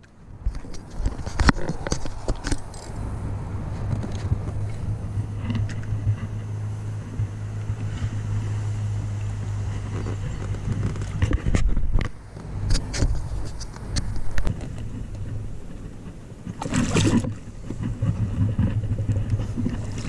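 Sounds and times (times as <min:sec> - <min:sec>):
low motor hum: 0:00.0 - 0:20.0
fishing gear knocking and rattling: 0:00.5 - 0:03.1.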